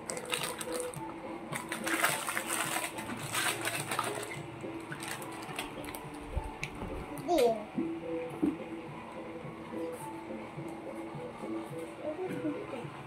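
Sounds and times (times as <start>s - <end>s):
plastic bags crinkling: 0.0s - 1.0s, 1.6s - 6.2s.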